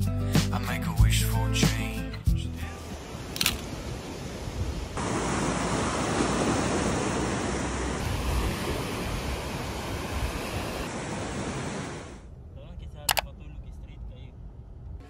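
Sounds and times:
wind on microphone: 2.9s - 12.2s
surf breaking on pebbly shore: 3.0s - 12.2s.

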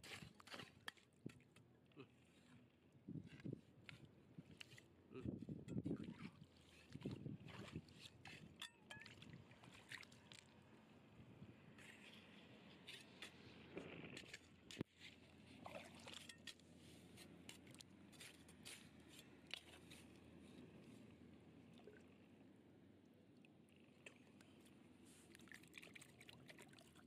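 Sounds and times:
hand tool scraping soil and stone: 0.0s - 1.1s, 11.8s - 15.2s, 16.2s - 20.2s.

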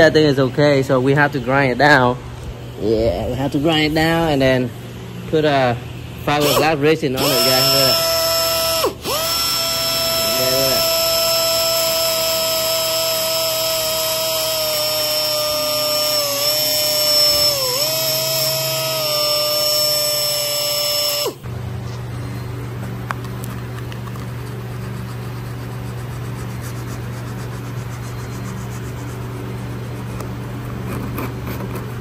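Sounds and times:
steady low hum: 0.0s - 32.0s
power grinder whining: 6.3s - 21.5s.

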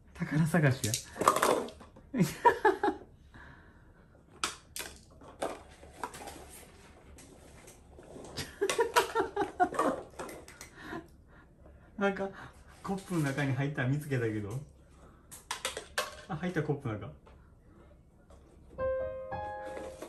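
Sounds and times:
paper cups clattering on wooden floor: 0.8s - 2.1s, 4.4s - 10.8s, 15.3s - 16.5s.

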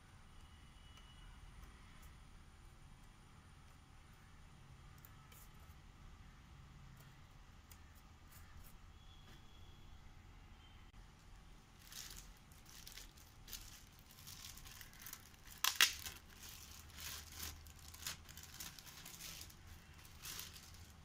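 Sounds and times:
plastic bag crinkling: 11.7s - 21.0s.

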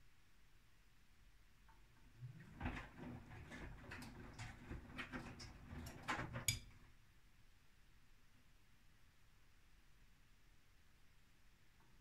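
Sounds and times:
washing machine motor hum: 2.0s - 6.7s.

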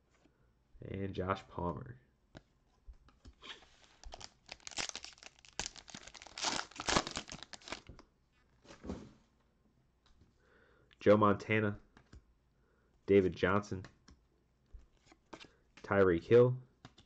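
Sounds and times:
foil wrapper tearing and crinkling: 4.0s - 7.9s.

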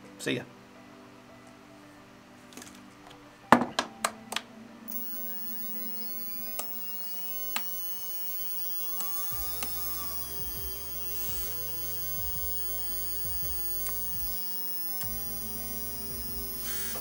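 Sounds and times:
helicopter motors whining: 4.9s - 17.0s
low hum: 4.9s - 17.0s
sharp clicks: 4.9s - 17.0s.

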